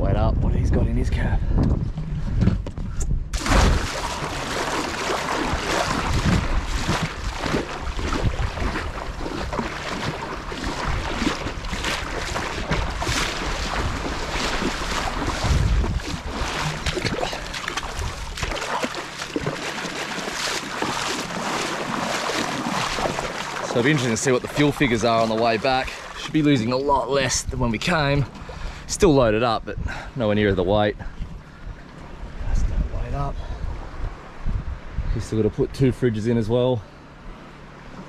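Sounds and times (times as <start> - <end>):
wind noise on microphone: 0.0 - 18.6, 32.4 - 35.9
seawater splashing around wading: 3.4 - 27.2.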